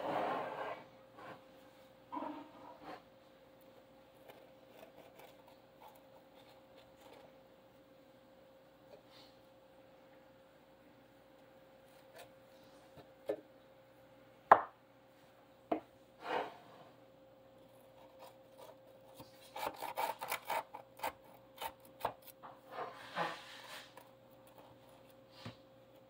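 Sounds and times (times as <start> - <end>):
faint steady hum: 0.0 - 26.0
knife sawing through bread rolls: 17.9 - 25.4.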